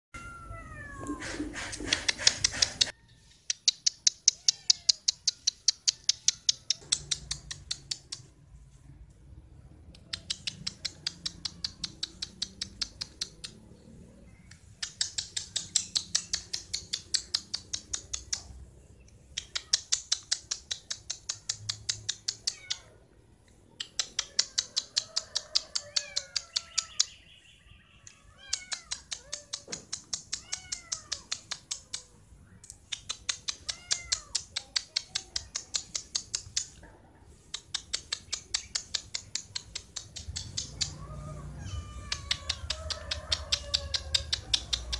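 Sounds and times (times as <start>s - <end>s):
cat meowing: 0.2s - 1.5s, 22.3s - 23.1s, 28.2s - 29.7s, 30.4s - 31.5s, 33.5s - 34.5s, 40.6s - 44.5s.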